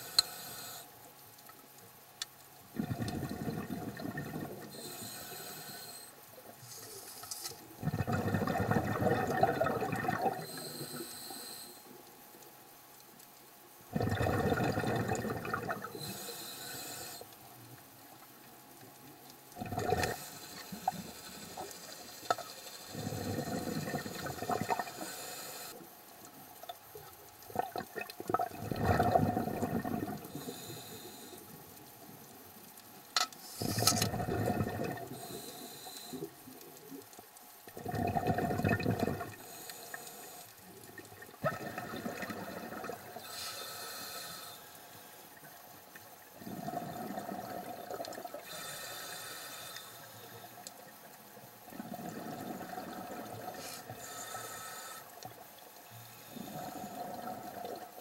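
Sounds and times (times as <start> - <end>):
regulator inhale hiss: 0.0 - 1.0, 4.6 - 7.8, 10.3 - 12.0, 15.8 - 17.4, 19.9 - 25.9, 30.2 - 31.9, 33.4 - 34.2, 35.0 - 36.6, 39.2 - 40.8, 43.1 - 45.6, 48.4 - 50.9, 53.2 - 57.4
exhaled bubbles gurgling underwater: 2.7 - 5.8, 7.8 - 11.0, 13.9 - 16.3, 19.5 - 25.1, 26.4 - 31.3, 33.5 - 39.7, 40.7 - 44.1, 45.3 - 49.0, 50.9 - 54.6, 56.2 - 58.0.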